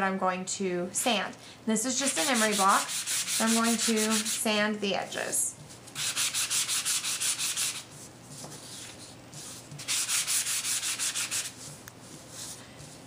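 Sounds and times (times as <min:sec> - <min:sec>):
sanding block scraping paper: 0:02.0 - 0:04.4, 0:06.0 - 0:07.9, 0:08.6 - 0:13.0.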